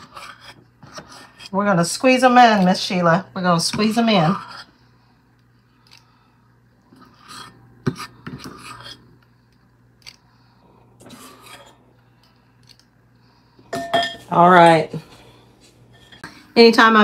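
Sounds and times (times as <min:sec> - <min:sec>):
metal scoop scraping bowl: 0:00.0 - 0:02.9, 0:03.7 - 0:04.7, 0:06.9 - 0:09.1, 0:11.0 - 0:11.8, 0:15.9 - 0:16.7.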